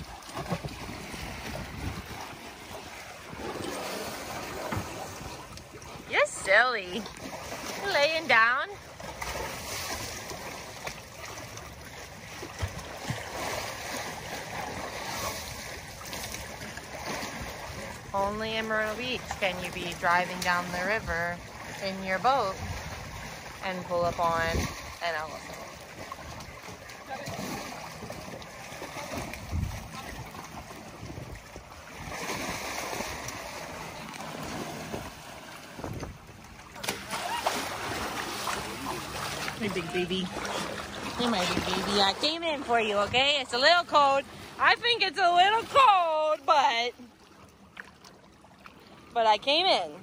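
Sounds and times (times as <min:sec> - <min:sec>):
water sloshing and splashing: 0:00.0 - 0:50.0
heavy rush of water: 0:26.1 - 0:46.8.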